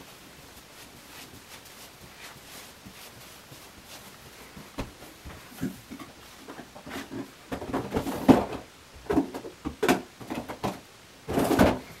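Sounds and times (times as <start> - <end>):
objects knocking and rattling: 4.8 - 12.0.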